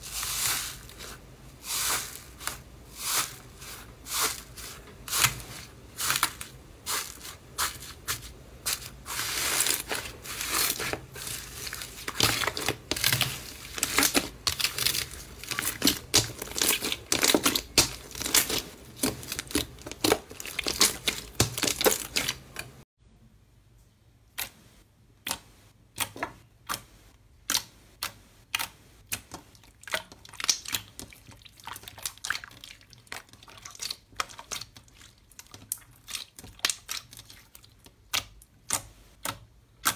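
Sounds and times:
crunchy slime crackling: 0:00.0 - 0:22.8.

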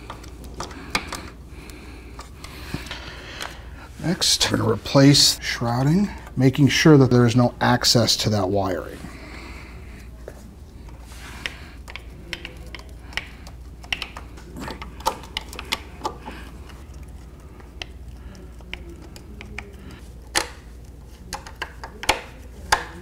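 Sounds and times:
plastic clicks and knocks: 0:21.3 - 0:23.0.

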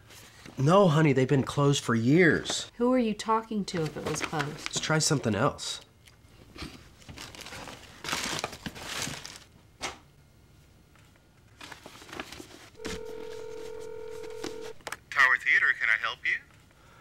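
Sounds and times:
paper pages rustling: 0:03.7 - 0:04.9, 0:07.0 - 0:09.5, 0:11.5 - 0:14.7
telephone ringback tone: 0:12.8 - 0:14.8.

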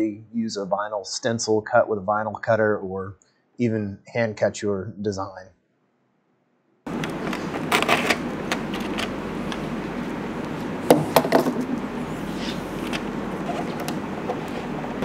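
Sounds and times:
masking tape crackling: 0:06.9 - 0:10.9
steady background noise: 0:06.9 - 0:15.0.

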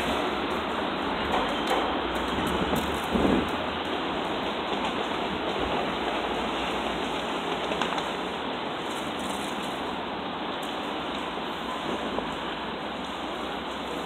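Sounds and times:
gusty wind on microphone: 0:00.0 - 0:14.0.

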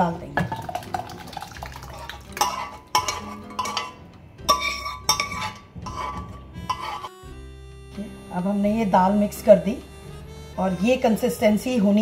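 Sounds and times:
metallic clinks against saucepan: 0:02.4 - 0:06.8.

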